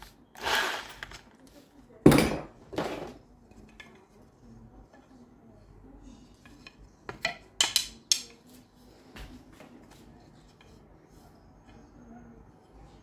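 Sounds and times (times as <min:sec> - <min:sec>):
wooden dowels clacking on workbench: 0:06.4 - 0:08.6.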